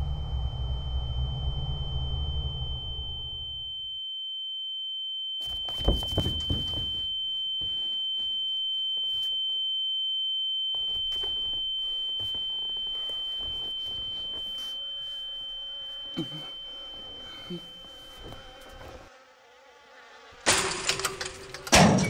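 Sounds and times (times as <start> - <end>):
high-pitched ringing tone: 0.0 - 19.1.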